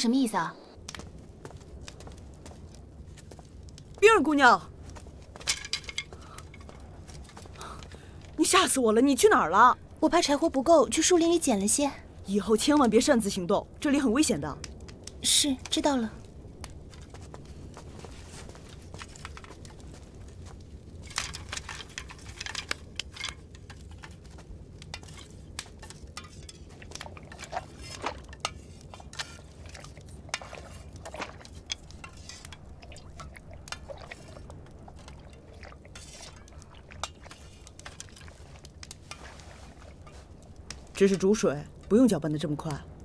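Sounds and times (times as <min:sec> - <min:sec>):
low steady hum: 0:00.0 - 0:43.0
liquid sloshing: 0:16.9 - 0:41.9
utensil scraping a wok: 0:24.9 - 0:40.4.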